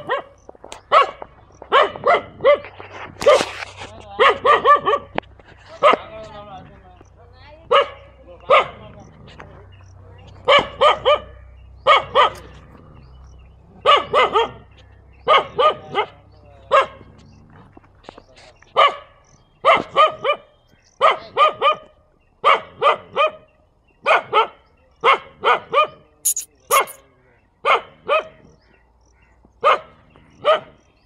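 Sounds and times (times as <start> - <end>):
dog barking: 0.0 - 2.7, 4.2 - 5.1, 7.7 - 8.8, 10.4 - 12.5, 13.8 - 14.6, 15.2 - 16.1, 16.7 - 17.0, 18.8 - 20.4, 22.4 - 23.4, 24.0 - 27.0, 29.6 - 30.7
dog squealing: 26.3 - 27.0.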